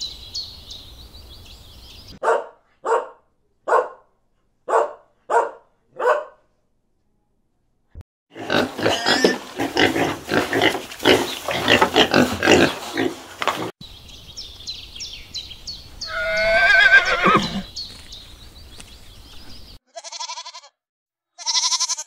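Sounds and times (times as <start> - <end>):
wild boar grunting: 8.3 - 13.7
horse whinnying: 16.1 - 17.7.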